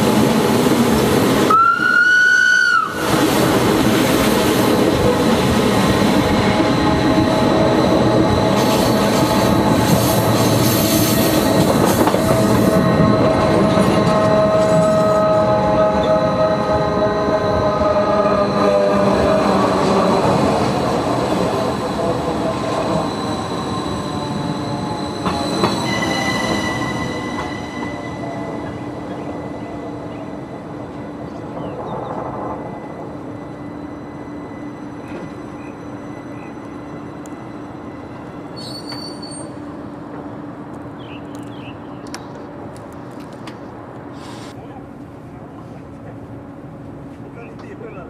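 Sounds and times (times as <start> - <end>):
rumble of train cars: 0.0 - 48.0
train wheels squealing: 6.6 - 18.9, 21.7 - 39.8.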